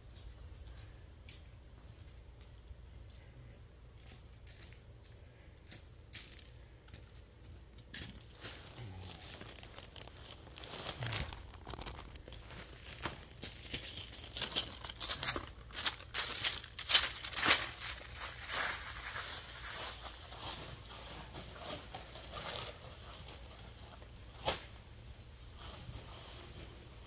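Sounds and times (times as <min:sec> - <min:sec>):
footsteps crunching dry leaves: 0:07.9 - 0:21.0.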